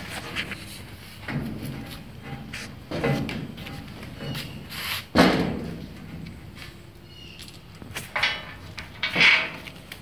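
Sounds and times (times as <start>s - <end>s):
metal bumper knocks and clunks: 1.2s - 6.4s, 8.0s - 9.9s.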